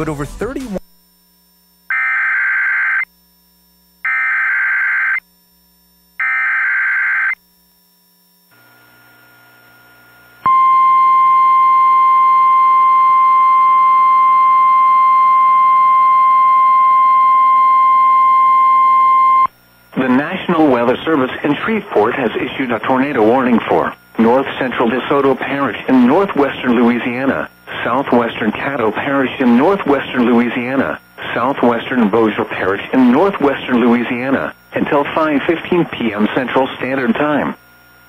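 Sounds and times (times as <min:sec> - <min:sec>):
steady warning alarm tone: 0:06.2 - 0:07.4.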